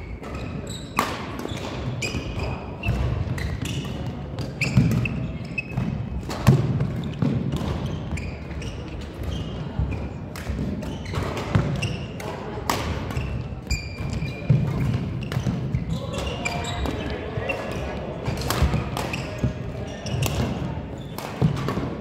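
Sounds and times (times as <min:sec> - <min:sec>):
shoe squeaks on court floor: 0:00.1 - 0:06.0, 0:07.0 - 0:10.2, 0:10.8 - 0:12.2, 0:13.1 - 0:17.9, 0:18.6 - 0:21.5
racket striking shuttlecock: 0:00.2 - 0:01.9, 0:10.3 - 0:17.0, 0:17.6 - 0:19.5.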